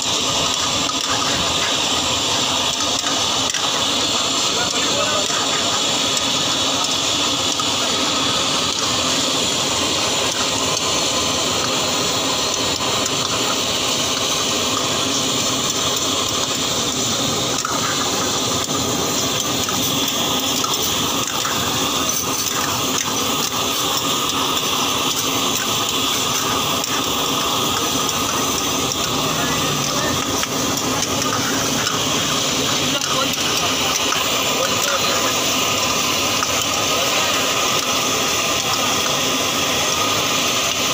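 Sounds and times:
food sizzling in woks: 0:00.0 - 0:40.9
ladle stirring: 0:12.5 - 0:36.8.

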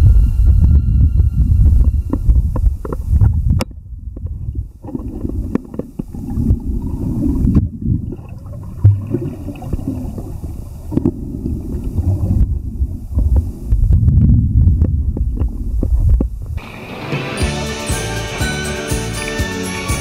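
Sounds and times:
muffled underwater rumble: 0:00.0 - 0:16.6
underwater clicks and knocks: 0:02.1 - 0:16.6.

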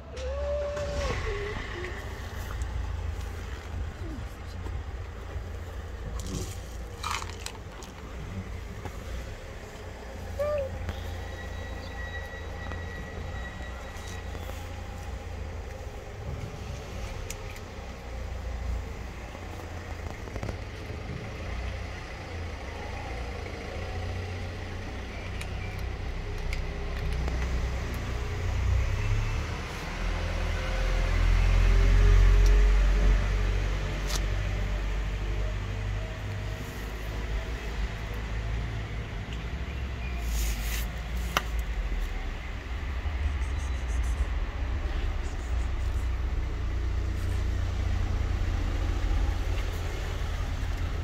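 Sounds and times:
vehicle passing: 0:00.0 - 0:25.0
low rumble of street traffic: 0:00.0 - 0:51.0
cats chewing dry kibble: 0:25.2 - 0:28.0.

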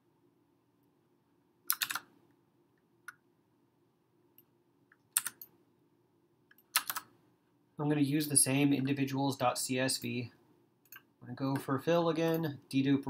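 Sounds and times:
faint hum: 0:00.0 - 0:13.0
keyboard and mouse clicking: 0:01.7 - 0:02.1, 0:04.9 - 0:05.5, 0:06.5 - 0:07.1.

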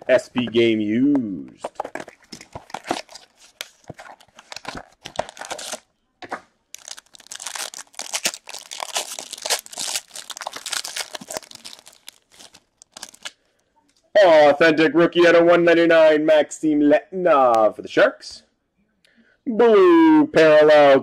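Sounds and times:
cardboard box rustling: 0:01.6 - 0:05.8, 0:06.8 - 0:13.3
foil pack crinkling and tearing: 0:02.0 - 0:05.8, 0:06.7 - 0:13.4.

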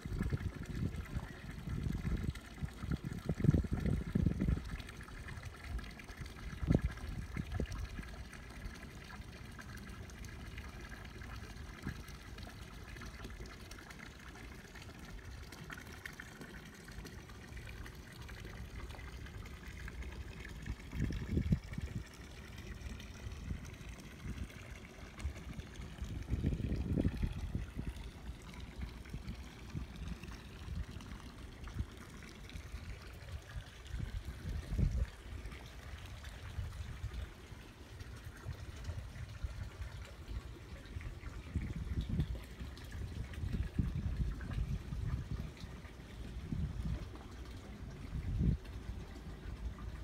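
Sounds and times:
water lapping against boat hulls: 0:00.0 - 0:50.0
low buffeting rumbles: 0:18.0 - 0:37.2.

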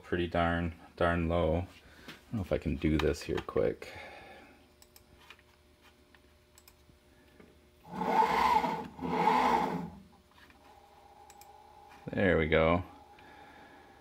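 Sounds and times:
servo motor whine: 0:07.9 - 0:10.0.

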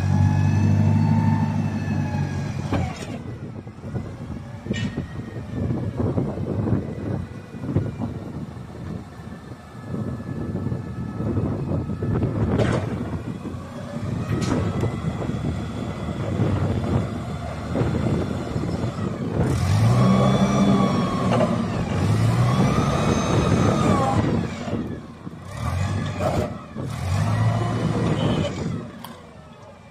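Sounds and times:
forklift engine revving: 0:00.0 - 0:03.3, 0:12.0 - 0:29.2.

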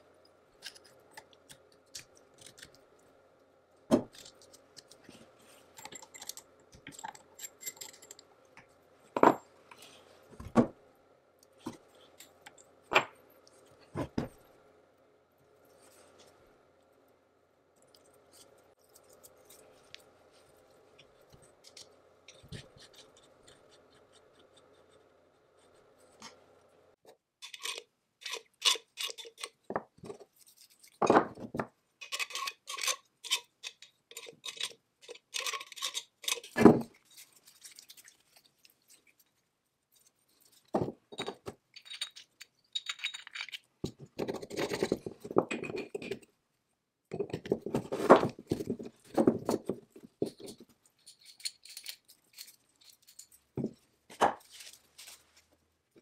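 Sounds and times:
faint steady hum: 0:00.0 - 0:56.0
metal parts clinking: 0:05.8 - 0:08.2, 0:41.2 - 0:43.7, 0:51.0 - 0:53.5.

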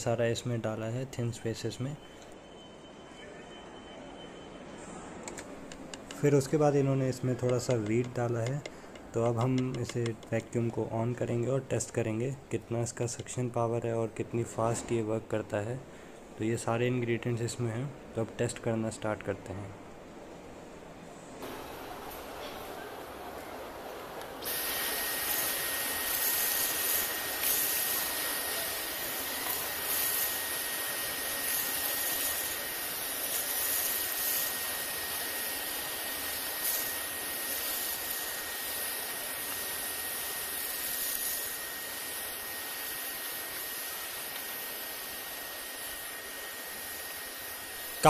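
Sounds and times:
cordless vacuum whining: 0:24.2 - 0:48.0.

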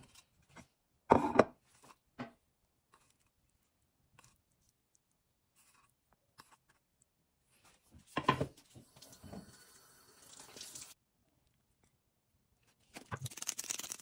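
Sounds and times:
water splashing and running: 0:08.8 - 0:11.0.

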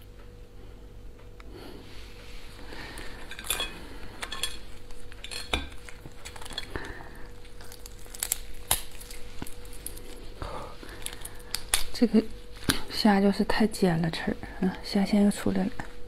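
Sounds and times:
faint steady hum: 0:00.0 - 0:16.0
lobster shell cracking: 0:03.0 - 0:12.8.

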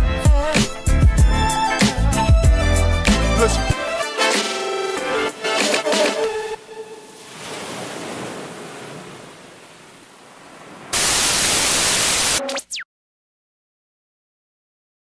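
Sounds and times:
loud burst of white noise: 0:10.9 - 0:12.4.

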